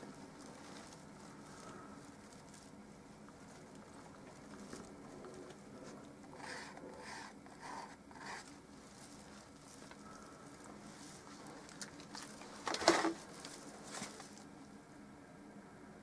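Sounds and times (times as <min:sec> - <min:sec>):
faint room hum: 0:00.0 - 0:16.0
paintbrush scratching on canvas: 0:05.8 - 0:10.4.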